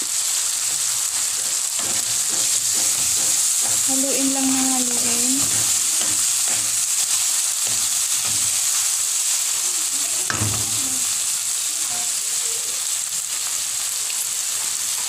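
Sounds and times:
food sizzling in oil: 0.0 - 15.0
wooden spatula scraping pan: 0.7 - 8.9
knock on wok: 1.8 - 6.8, 10.3 - 11.0.

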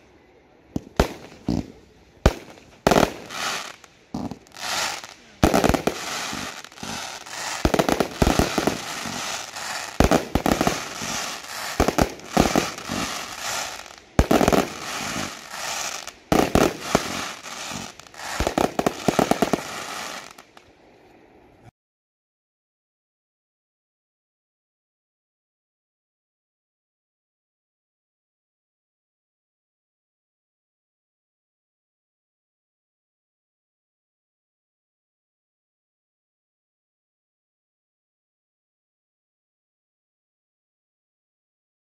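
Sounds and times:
firework shots and aerial bursts: 0.7 - 20.6.

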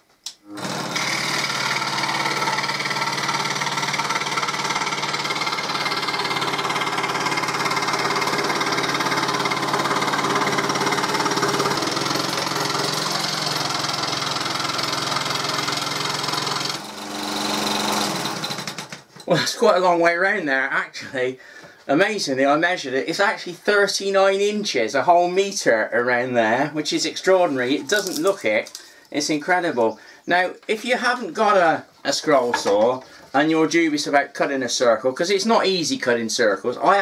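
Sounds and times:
scroll saw cutting plywood: 0.5 - 19.0.

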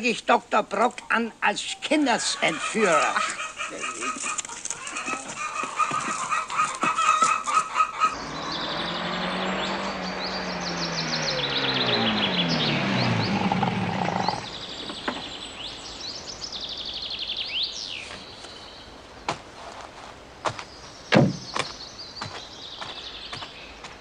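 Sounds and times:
small birds chirping trills: 0.8 - 19.4, 20.4 - 24.0
car engine driving off: 8.1 - 15.4.

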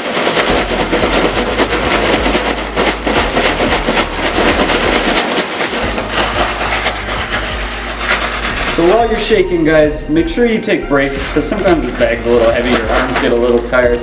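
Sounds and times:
ice cubes rattling in plastic bag: 0.0 - 14.0.

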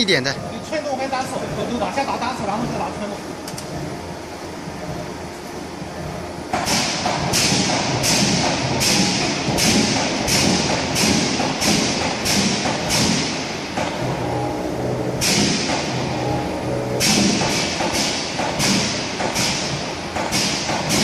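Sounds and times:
power press thudding: 15.1 - 21.0
sharp pneumatic hiss: 15.2 - 15.9.

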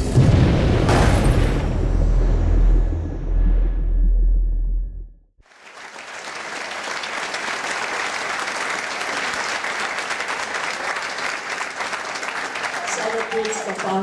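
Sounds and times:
deep boom: 0.0 - 5.2
congregation applauding: 5.4 - 14.0.

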